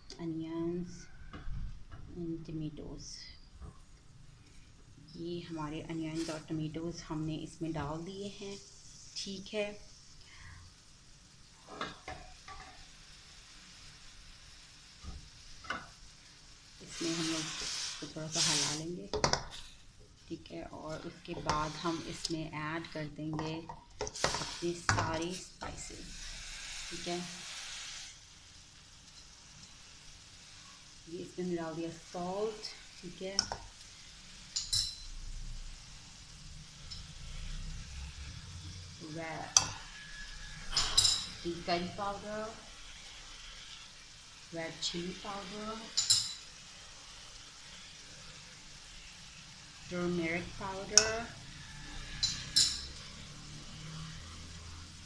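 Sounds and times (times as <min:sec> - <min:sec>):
onions sizzling in a pan: 0:02.4 - 0:55.0
spoon scraping pan: 0:16.8 - 0:19.8, 0:20.9 - 0:27.6, 0:39.3 - 0:44.0, 0:50.4 - 0:53.2
spoon tapping against pan: 0:19.1 - 0:19.5, 0:33.4 - 0:33.7, 0:39.6 - 0:39.8.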